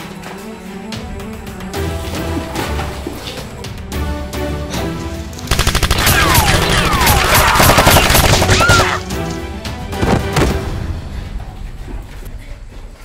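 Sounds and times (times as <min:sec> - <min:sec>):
background music: 0:00.0 - 0:13.0
machine-gun sound effect: 0:05.5 - 0:09.0.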